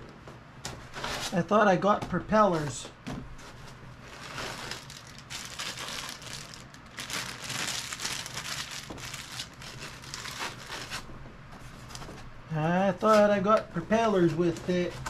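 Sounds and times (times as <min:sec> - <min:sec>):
packaging crinkling and rustling: 0:03.4 - 0:12.3.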